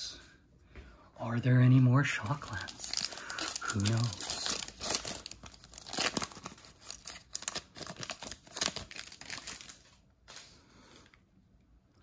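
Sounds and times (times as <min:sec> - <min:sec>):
foil wrapper tearing and crinkling: 0:02.2 - 0:10.0.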